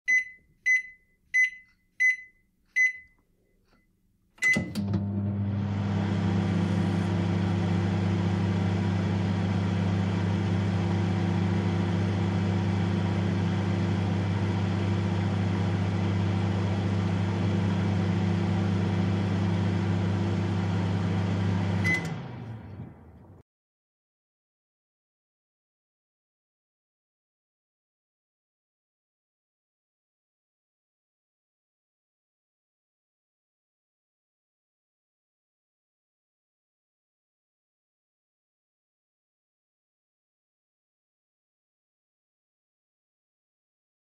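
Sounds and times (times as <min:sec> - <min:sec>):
microwave keypad beeping: 0:00.1 - 0:03.2, 0:04.4 - 0:05.1, 0:21.8 - 0:22.2
microwave humming with fan whirr: 0:04.4 - 0:23.4.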